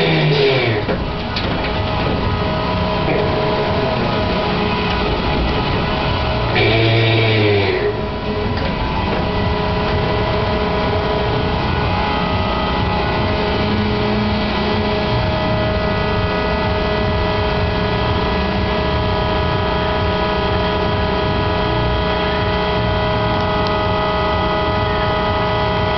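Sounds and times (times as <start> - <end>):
ride drive motor whine: 0.0 - 25.9.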